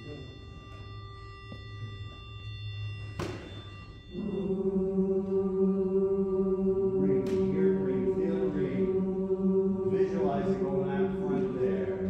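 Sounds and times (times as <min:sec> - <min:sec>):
women's a cappella chorus: 0:04.1 - 0:12.0.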